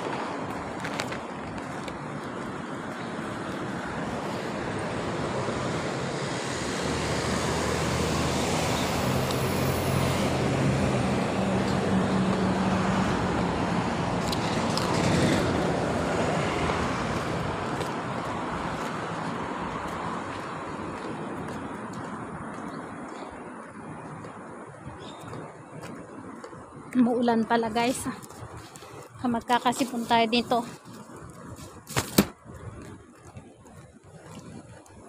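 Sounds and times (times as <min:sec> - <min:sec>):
heavy vehicle engine hum: 0:00.0 - 0:23.0
passing vehicles hiss: 0:03.6 - 0:17.7.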